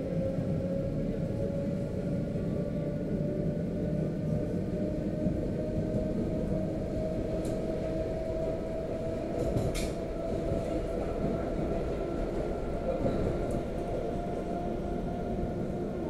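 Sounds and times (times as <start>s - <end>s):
train rumble: 0.0s - 16.0s.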